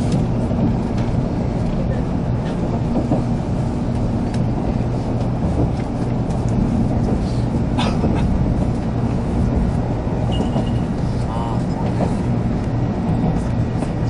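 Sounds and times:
train rumbling along: 0.0 - 14.0.

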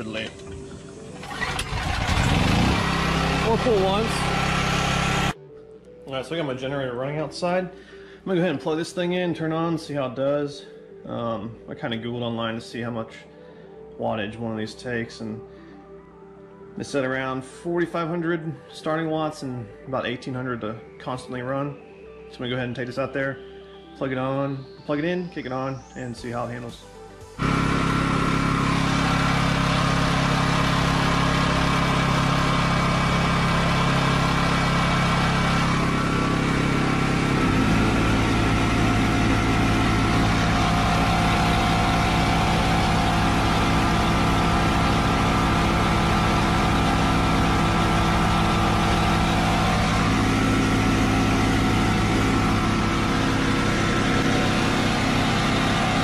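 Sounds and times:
generator engine running: 0.0 - 5.4, 27.3 - 56.0
air compressor pulsing: 0.4 - 5.4, 27.4 - 56.0.

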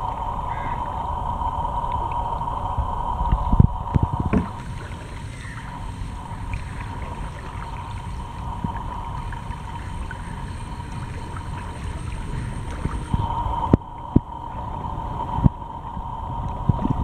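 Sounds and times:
steady low rumble: 0.0 - 17.0
paddle dipping through water: 3.3 - 14.3
water dripping off paddle: 3.3 - 14.3.

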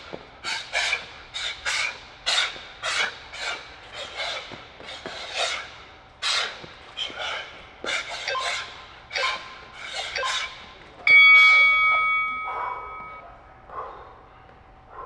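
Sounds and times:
sharp exhaled breaths: 0.0 - 10.7
hard breathing: 0.0 - 10.8
timer bell strike: 11.1 - 13.2.

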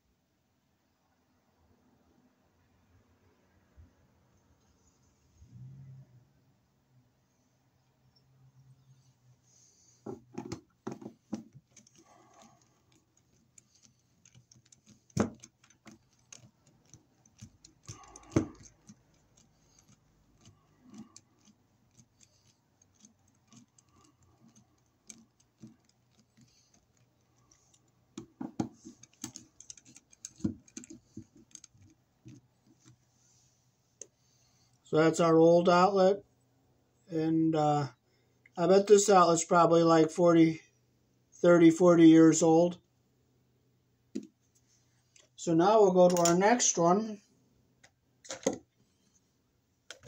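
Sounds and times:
screwdriver clicking and scraping: 10.3 - 33.1, 46.1 - 46.4, 47.8 - 48.7.

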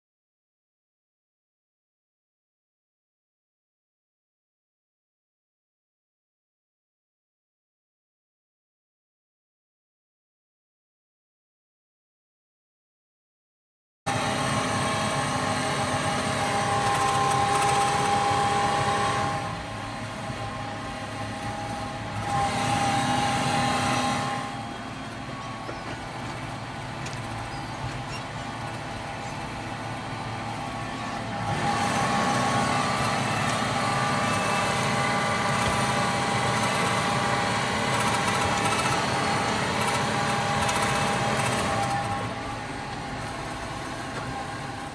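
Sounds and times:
tractor engine drone with whine: 14.1 - 44.9.

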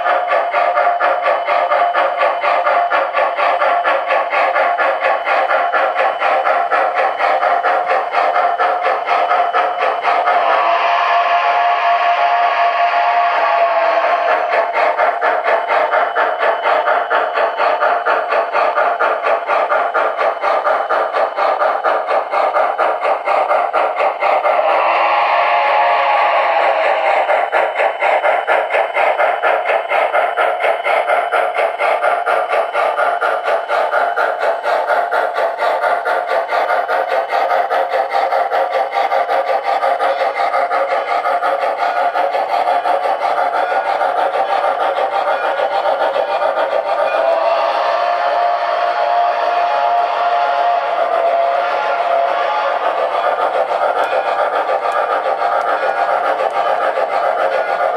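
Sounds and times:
model steam locomotive chuffing: 0.0 - 57.9.

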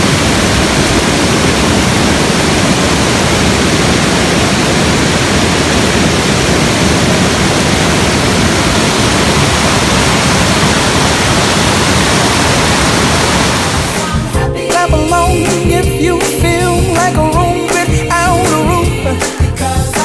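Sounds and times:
rushing falling water: 0.0 - 14.3.

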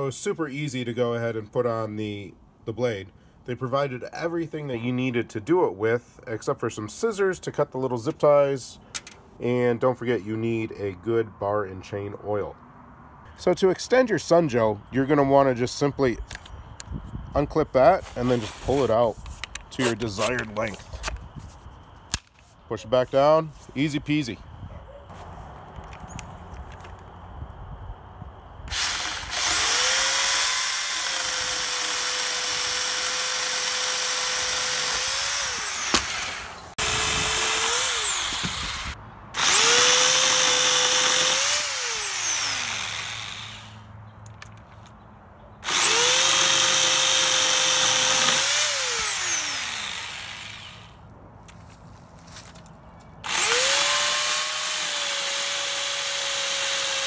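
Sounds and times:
electric pole saw whining: 28.7 - 43.9, 45.6 - 51.0, 53.2 - 57.0.

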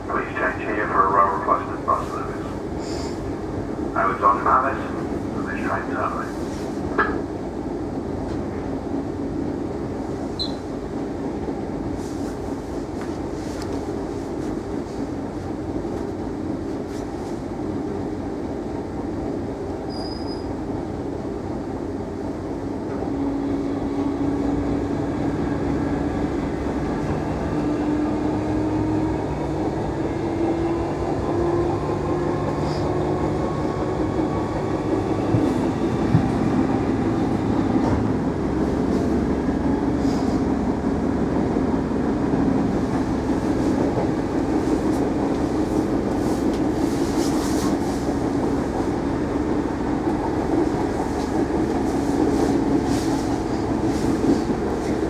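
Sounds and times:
short high squeak: 10.4 - 10.7, 19.9 - 20.5
wheels rumbling on track: 21.8 - 55.0.

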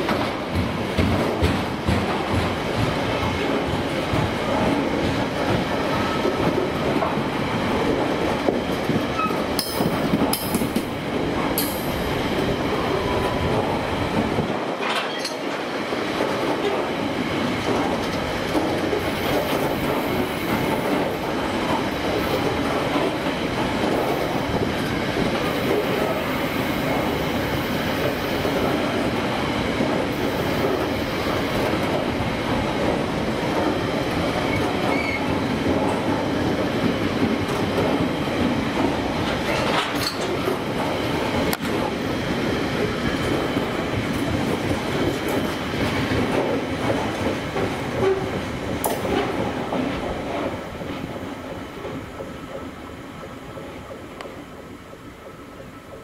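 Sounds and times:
freight train wheels rumbling: 0.0 - 56.0
sharp clicks of rail joints: 39.2 - 40.6.

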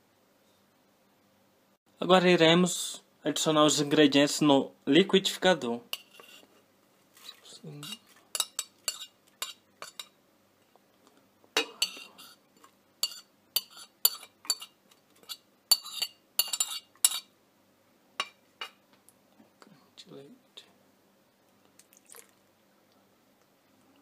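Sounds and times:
knife scraping a ceramic plate: 5.9 - 6.6, 7.8 - 10.1, 11.6 - 17.3.

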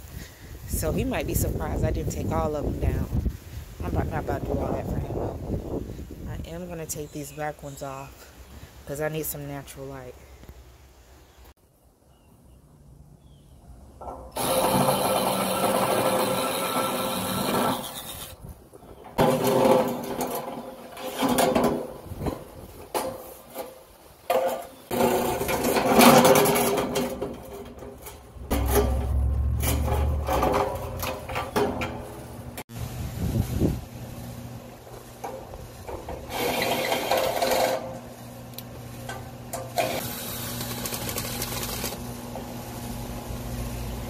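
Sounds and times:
cordless drill running: 14.4 - 18.3.

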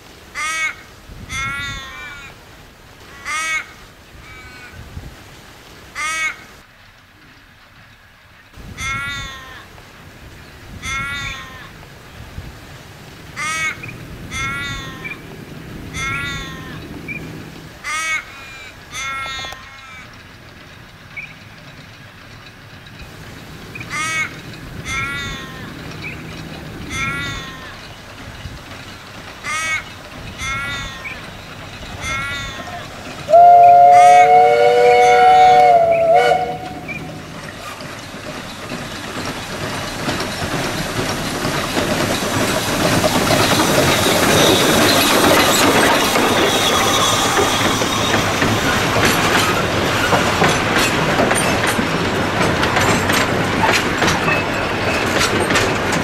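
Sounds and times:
ravens cawing: 0.4 - 2.4, 3.0 - 4.8, 6.0 - 6.6, 8.8 - 9.8, 10.8 - 11.8, 13.3 - 15.2, 15.9 - 17.0, 17.8 - 20.1, 23.8 - 26.1, 26.8 - 27.9, 29.4 - 37.4.

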